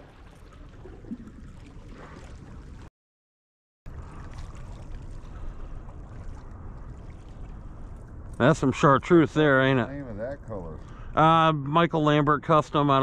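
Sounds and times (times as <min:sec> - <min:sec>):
lake waves lapping against rocks: 0:00.0 - 0:02.9, 0:03.9 - 0:11.2.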